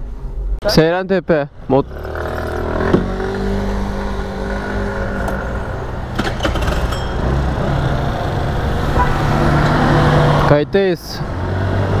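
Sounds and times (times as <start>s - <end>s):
street traffic: 0.0s - 12.0s
motor scooter engine running: 1.9s - 3.2s.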